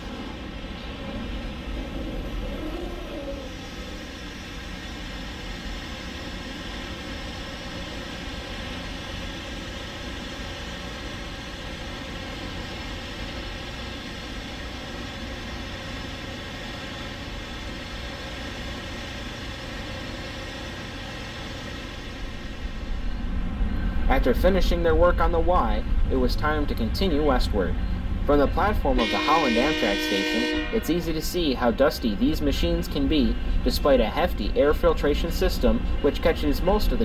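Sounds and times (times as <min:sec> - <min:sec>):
drone propellers humming: 0:00.0 - 0:27.0.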